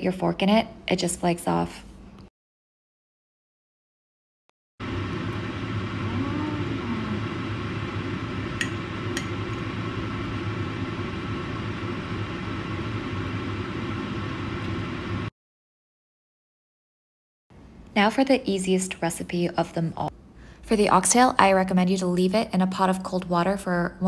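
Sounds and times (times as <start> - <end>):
room noise with low hum: 4.9 - 15.3.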